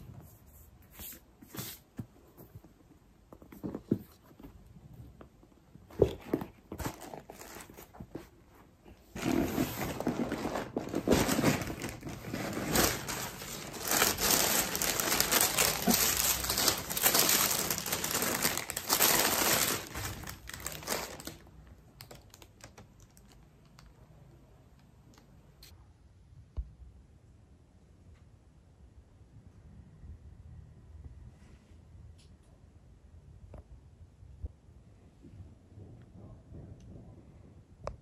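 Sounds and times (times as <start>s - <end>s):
tissue paper crinkling: 6.0s - 23.4s.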